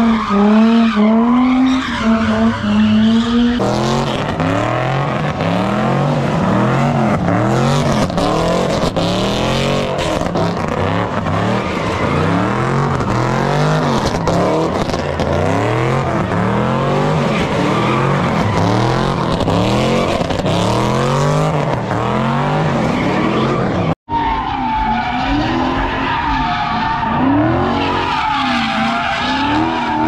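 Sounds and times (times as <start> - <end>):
car engine revving: 0.0 - 24.0
tires squealing: 0.0 - 30.0.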